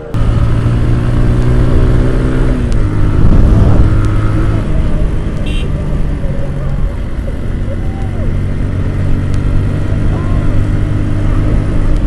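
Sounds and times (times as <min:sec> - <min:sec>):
motorcycle engine running: 0:00.0 - 0:12.0
wind rumble on microphone: 0:01.6 - 0:07.2.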